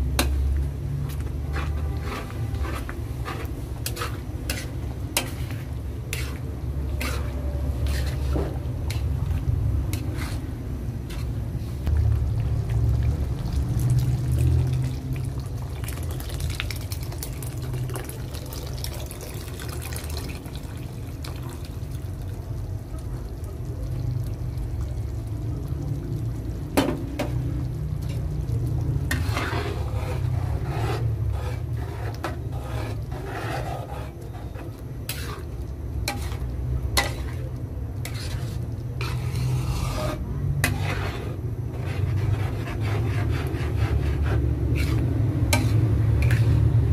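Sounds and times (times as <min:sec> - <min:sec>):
spoon stirring sauce in pan: 0:00.1 - 0:46.8
low rumble: 0:11.9 - 0:15.6.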